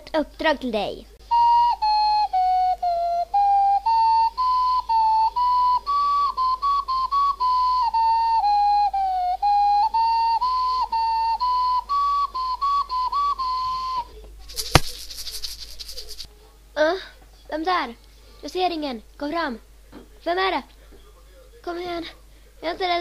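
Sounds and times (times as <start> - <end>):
simple flute-like tune: 1.2 - 14.2.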